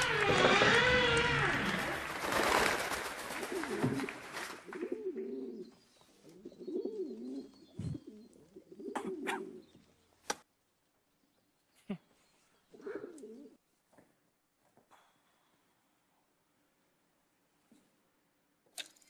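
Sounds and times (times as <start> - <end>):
low wavering cooing: 6.4 - 9.7, 12.8 - 13.6.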